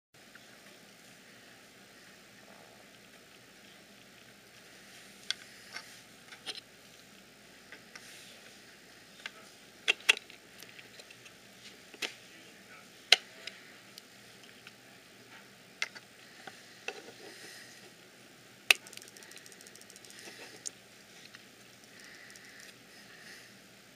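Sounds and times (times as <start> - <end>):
plastic impeller clicking: 18.7 - 20.7.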